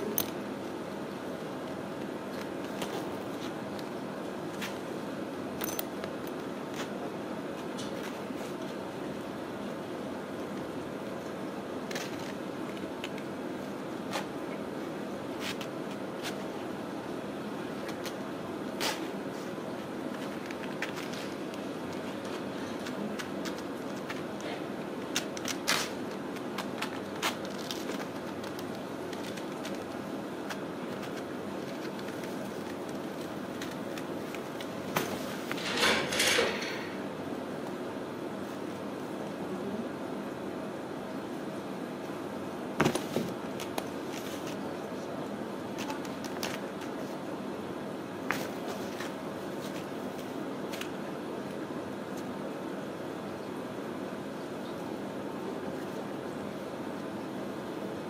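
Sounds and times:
room hiss: 0:00.0 - 0:58.0
kittens scratching on fabric: 0:11.8 - 0:16.8, 0:17.6 - 0:35.6
paws scratching fabric bag: 0:25.0 - 0:35.5.

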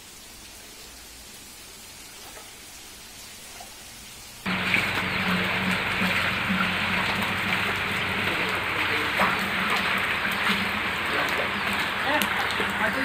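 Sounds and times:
heavy rain falling: 0:04.3 - 0:13.0
faint voices: 0:04.5 - 0:13.0.

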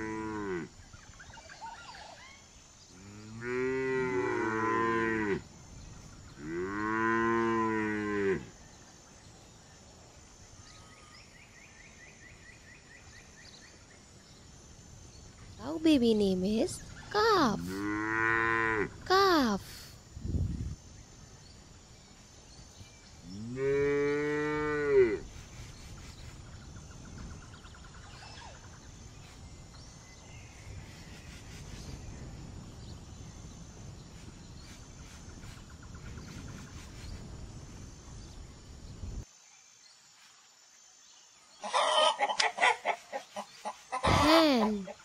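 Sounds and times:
hens clucking: 0:41.6 - 0:45.0.

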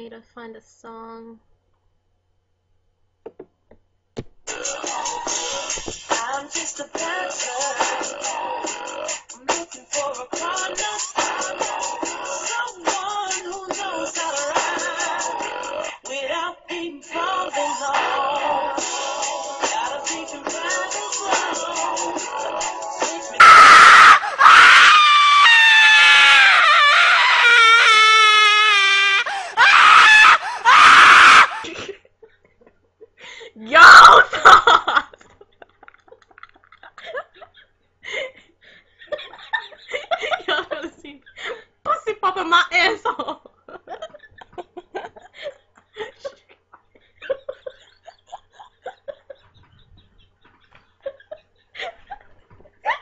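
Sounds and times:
shrill scream: 0:23.3 - 0:31.7, 0:33.7 - 0:34.4
woman giggling and laughing: 0:31.6 - 0:53.0.

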